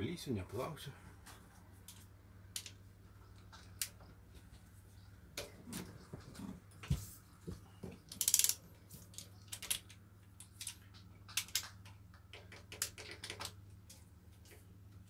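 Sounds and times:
socket ratchet clicking: 8.1s - 8.6s.

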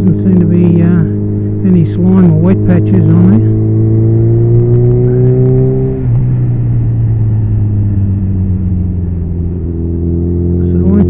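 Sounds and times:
motorcycle engine: 0.0s - 11.0s
wind rush: 3.5s - 10.3s.

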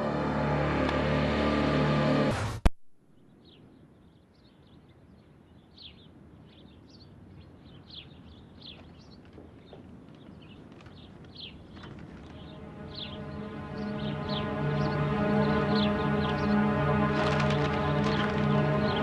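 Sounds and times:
birds chirping: 3.2s - 19.0s
low rumbling background: 12.0s - 19.0s.

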